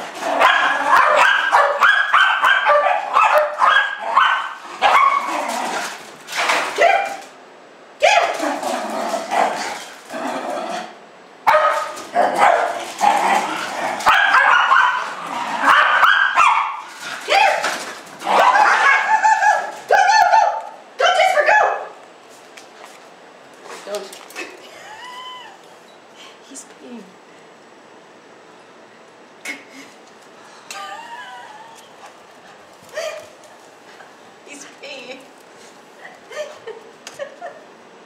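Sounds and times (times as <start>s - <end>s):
small dogs barking and yipping: 0.4s - 5.6s, 11.5s - 12.9s, 14.0s - 22.0s.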